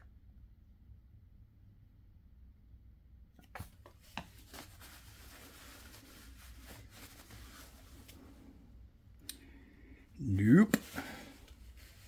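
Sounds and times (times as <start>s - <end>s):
soft rubbing and rustling: 3.4s - 8.8s, 10.3s - 12.0s.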